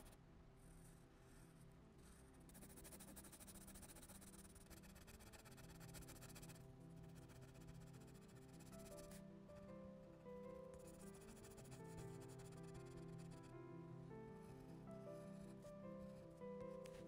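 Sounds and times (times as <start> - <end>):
colored pencil scratching on paper: 0.0 - 9.2, 10.1 - 13.5, 14.3 - 17.0
soft background music: 0.0 - 17.0.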